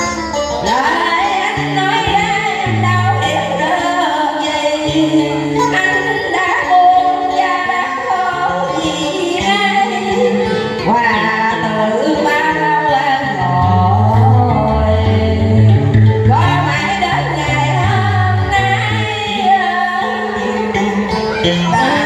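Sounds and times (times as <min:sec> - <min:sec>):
backing track with bass line: 0:00.0 - 0:22.0
woman singing into microphone: 0:00.0 - 0:22.0.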